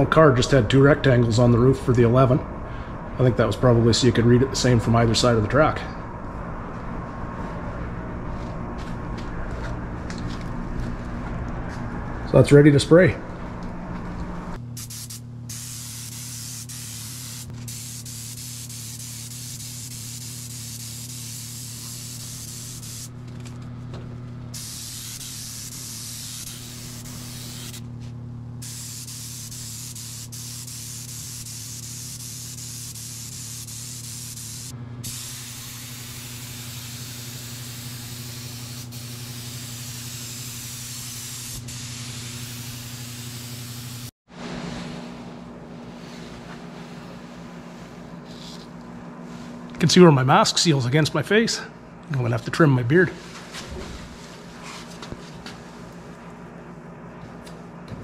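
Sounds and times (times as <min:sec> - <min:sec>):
steady low hum: 0:00.0 - 0:58.0
paint spray gun hissing: 0:14.8 - 0:23.2, 0:24.6 - 0:27.9, 0:28.6 - 0:44.1.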